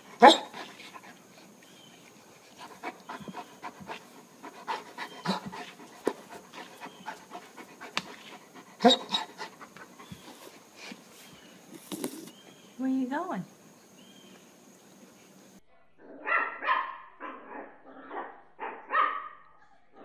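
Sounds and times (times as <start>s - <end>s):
large dog panting: 0.0s - 11.4s.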